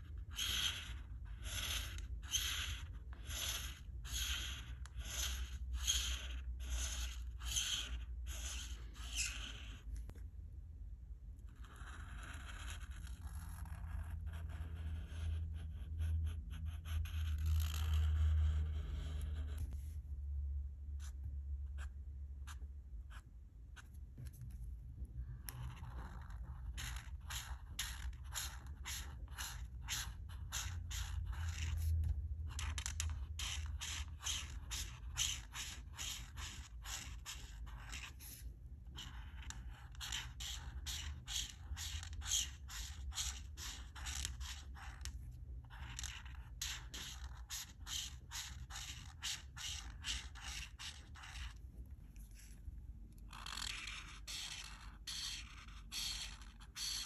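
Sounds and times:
marker scraping across paper: 0.0 - 10.2, 11.4 - 20.1, 20.9 - 57.0.

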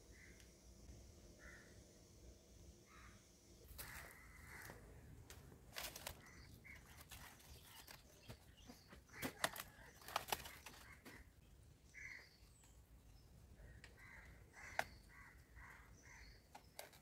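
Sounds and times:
banana leaves rustling and tearing: 3.8 - 8.5, 9.1 - 11.3.

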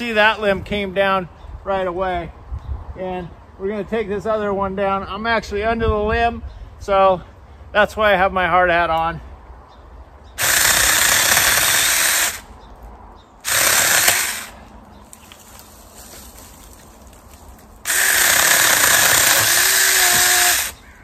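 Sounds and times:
chainsaw cutting a tree limb: 10.4 - 12.5, 13.4 - 14.6, 17.8 - 20.8.

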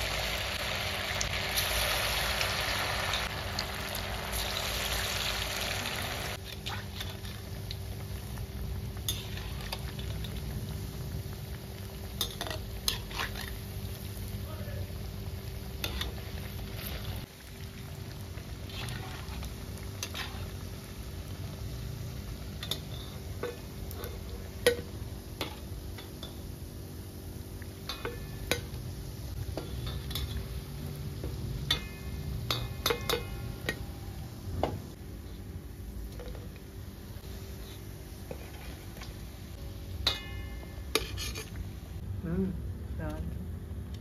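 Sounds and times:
food deep-frying in hot oil: 0.0 - 42.0
metal spoon clinking on pan: 27.9 - 28.8, 31.7 - 33.8, 40.0 - 41.6.

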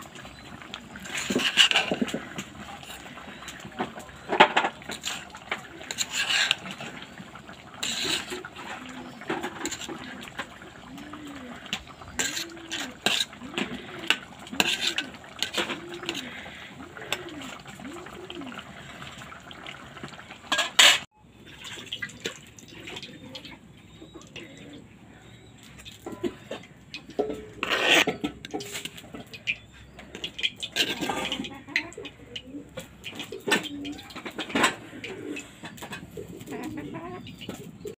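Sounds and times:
spatula scraping a cooking pot: 0.3 - 19.1, 20.5 - 21.1, 26.0 - 31.7.

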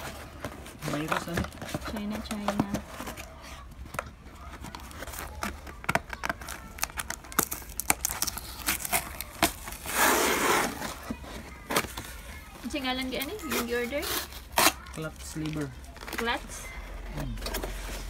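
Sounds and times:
cardboard crackling and rustling: 0.0 - 18.0
packing tape tearing: 4.5 - 12.4, 13.1 - 16.4.

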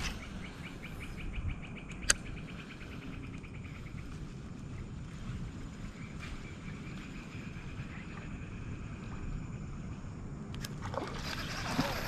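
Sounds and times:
low rumble: 0.0 - 11.8
insect chirping: 0.0 - 12.0
sharp click: 1.9 - 2.3.

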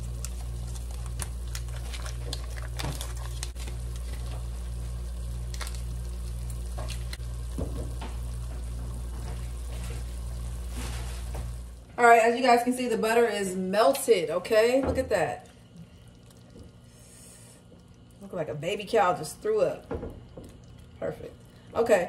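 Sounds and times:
onions sizzling in a pan: 0.0 - 11.8
crackles and pops: 0.0 - 11.9
steady low hum: 0.0 - 22.0.

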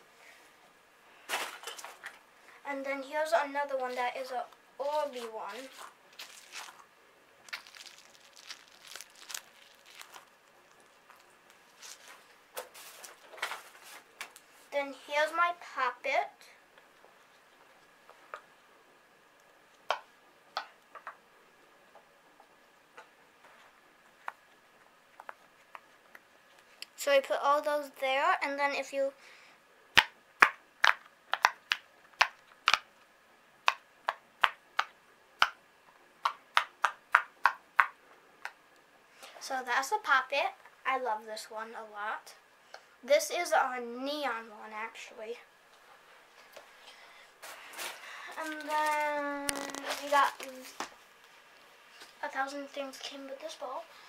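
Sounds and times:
toys rummaged in plastic bin: 5.0 - 6.8, 7.5 - 10.3, 11.7 - 13.9, 47.4 - 50.8
stress ball squishing: 5.6 - 12.9, 29.9 - 32.9, 36.2 - 38.6, 47.8 - 51.0.

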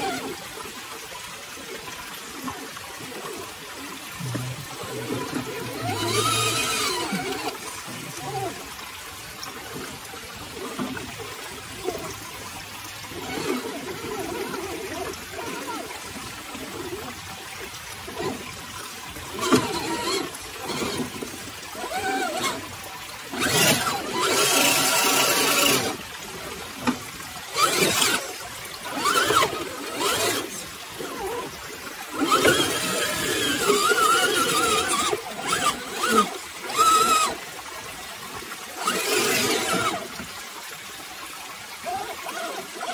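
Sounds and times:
creek trickling over rocks: 0.0 - 42.9
electric motor and gear whine: 3.8 - 8.8, 13.0 - 37.6, 38.2 - 40.4.

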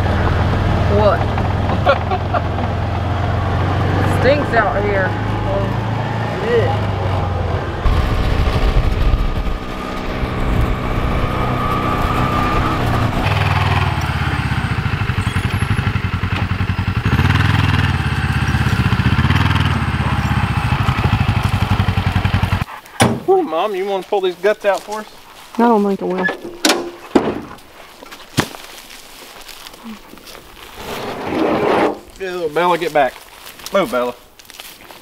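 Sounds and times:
utility vehicle engine running: 0.0 - 22.7.

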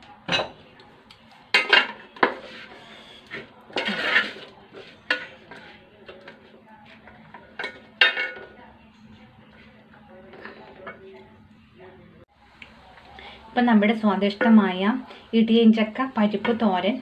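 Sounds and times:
spatula scraping and knocking pot: 1.5 - 8.5.

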